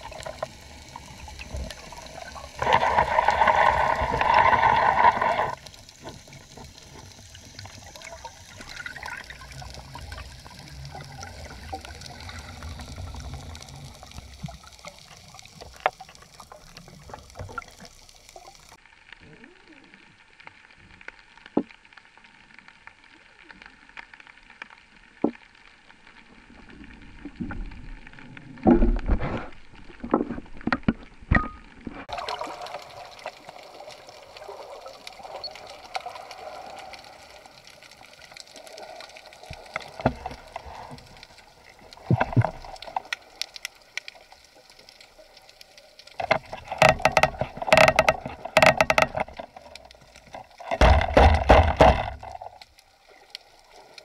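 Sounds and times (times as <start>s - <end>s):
rushing water bursts: 0.0s - 18.8s, 32.0s - 54.0s
low underwater hiss: 0.0s - 30.0s, 31.8s - 54.0s
sharp clicks and knocks: 46.2s - 52.7s.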